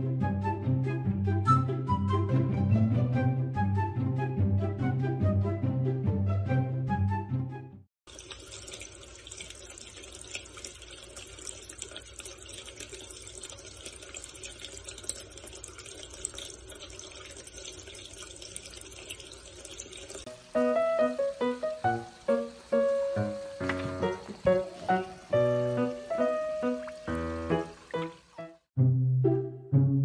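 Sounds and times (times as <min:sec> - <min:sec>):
music: 0:00.0 - 0:07.9, 0:20.3 - 0:30.0
water splashing into plastic dish: 0:22.5 - 0:28.3.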